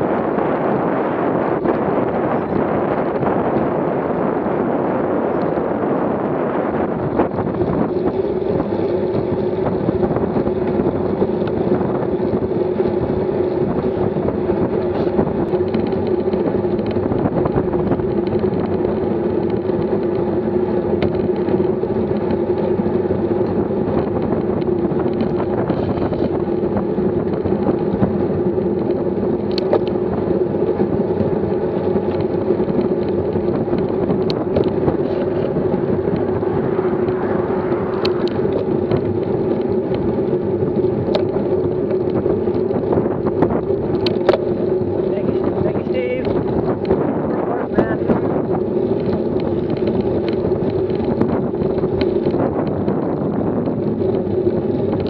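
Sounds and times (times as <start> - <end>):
tyres rumbling on asphalt: 0.0 - 55.0
wind rushing over microphone: 0.0 - 55.0.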